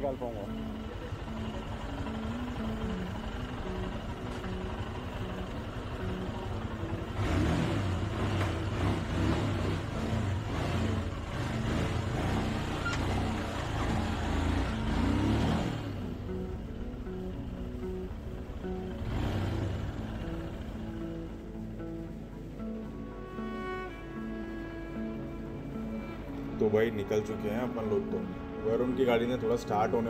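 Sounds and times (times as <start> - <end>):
motorcycle engine revving: 0.5 - 16.6, 18.6 - 21.1.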